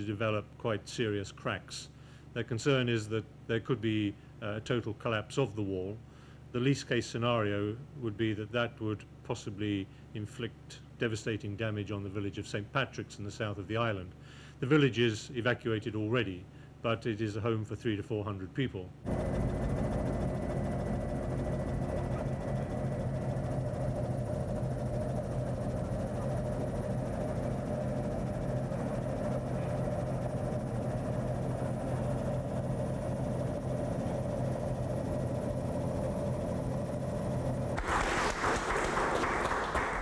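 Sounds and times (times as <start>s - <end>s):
aircraft engine drone: 19.0s - 40.0s.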